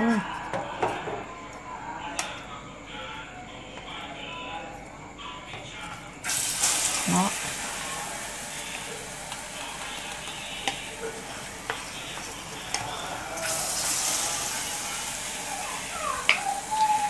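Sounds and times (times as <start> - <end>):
food sizzling in hot oil: 6.2 - 17.0.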